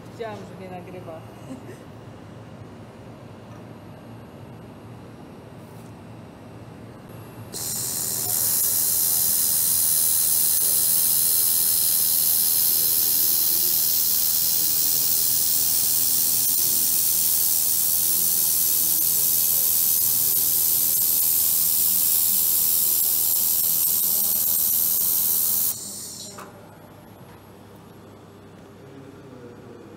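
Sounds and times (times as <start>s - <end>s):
laser welding hiss: 7.5s - 26.5s.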